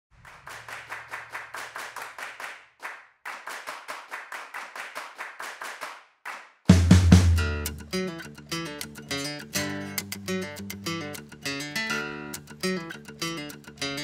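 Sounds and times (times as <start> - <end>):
rhythmic hand claps: 0.2 - 10.8.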